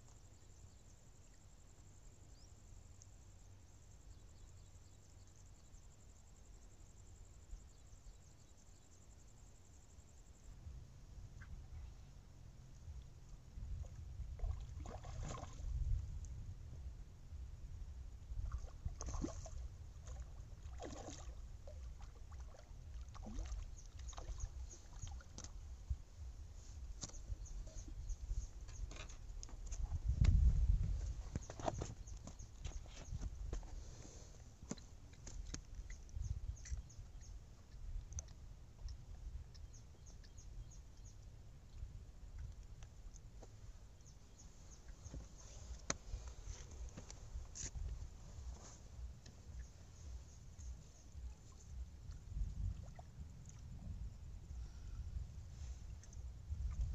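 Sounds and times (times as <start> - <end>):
steady low rumble: 9.2 - 56.9
fish splashing in water: 19.0 - 25.5
small birds chirping: 21.1 - 30.2, 31.0 - 52.4.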